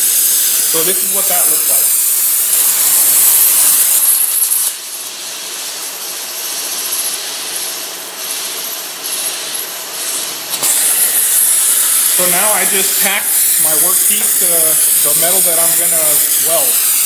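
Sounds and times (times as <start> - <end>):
plasma torch hissing: 0.0 - 17.0.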